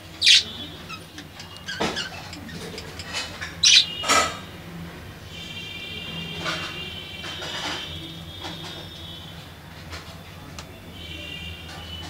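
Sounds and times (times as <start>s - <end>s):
budgerigars chirping: 0.1s - 4.2s
budgerigars warbling chatter: 0.1s - 4.4s.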